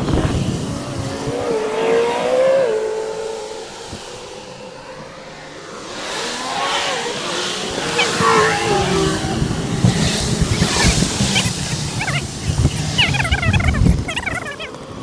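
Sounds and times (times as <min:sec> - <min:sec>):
wind buffeting microphone: 0:00.0 - 0:05.9, 0:07.3 - 0:14.6
gliding tone: 0:00.0 - 0:14.6
high warbling chirps: 0:10.1 - 0:14.6.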